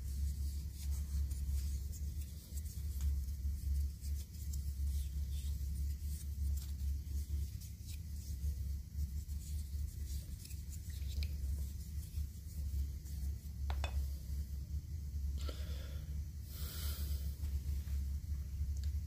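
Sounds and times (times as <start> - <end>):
hands rubbing wooden spoon: 0.0 - 14.4
steady low hum: 0.0 - 19.0.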